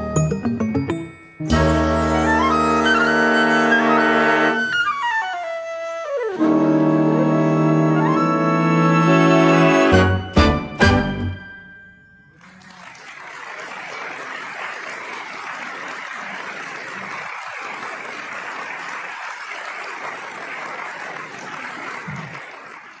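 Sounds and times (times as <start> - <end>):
audience applauding: 12.4 - 23.0.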